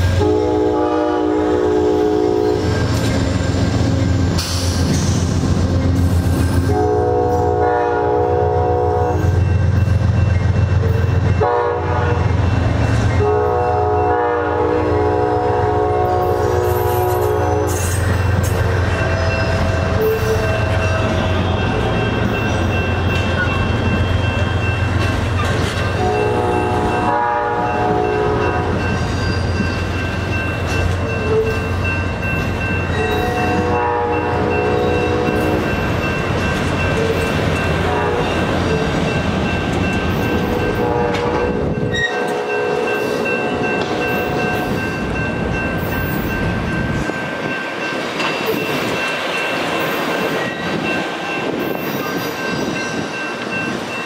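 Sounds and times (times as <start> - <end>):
train horn blasts: 0.0 - 2.8, 6.6 - 9.4, 11.4 - 12.4, 13.2 - 18.0, 19.0 - 22.1, 25.9 - 28.9, 32.9 - 35.7, 37.8 - 38.5, 40.4 - 44.3
train rumbling on rails: 0.0 - 54.0.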